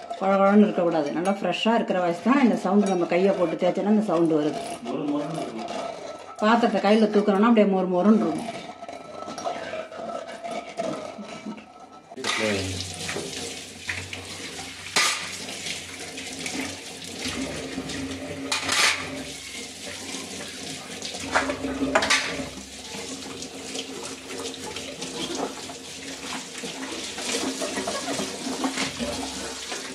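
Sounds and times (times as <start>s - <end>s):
steel dishes clanking: 2.6s - 12.8s, 14.9s - 15.5s, 18.4s - 19.4s, 21.2s - 22.6s.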